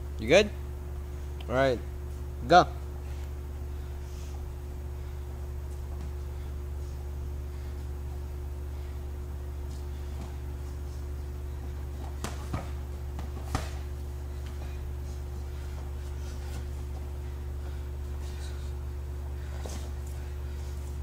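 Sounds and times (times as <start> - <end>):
low hum: 0.0 - 21.0
boxing glove smacks: 12.0 - 13.9.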